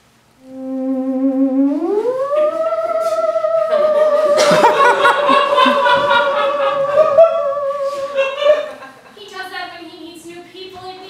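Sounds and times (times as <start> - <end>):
wavering theremin-like tone: 0.4 - 8.8
audience laughter: 3.7 - 9.2.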